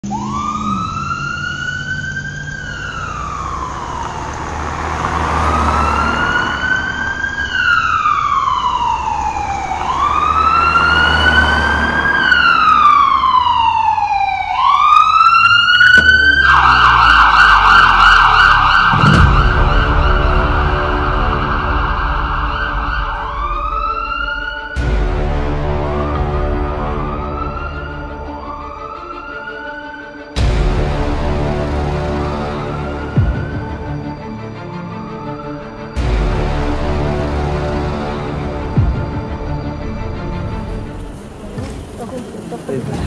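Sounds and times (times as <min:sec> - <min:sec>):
ambulance siren wailing: 0:00.0 - 0:42.7
deep falling boom: 0:15.8 - 0:27.4.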